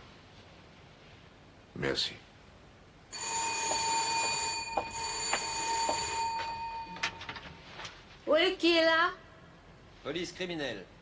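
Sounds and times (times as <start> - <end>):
electric doorbell ringing: 3.2 - 7.5.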